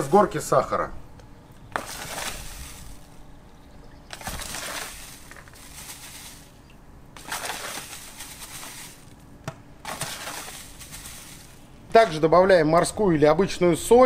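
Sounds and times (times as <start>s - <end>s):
sugar sprinkling hiss: 1.8s - 3.1s, 4.2s - 9.2s, 9.9s - 11.9s.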